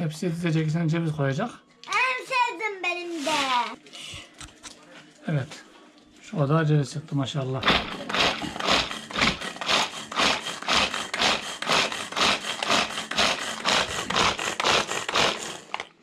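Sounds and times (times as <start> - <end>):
walnuts being ground: 7.6 - 16.0.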